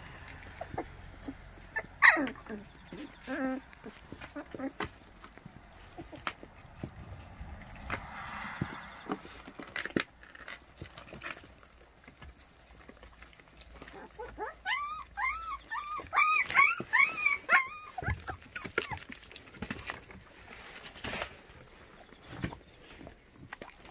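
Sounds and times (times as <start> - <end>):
puppy whining: 0.2 - 6.8, 12.7 - 19.6
paws clicking on floor: 10.4 - 20.4.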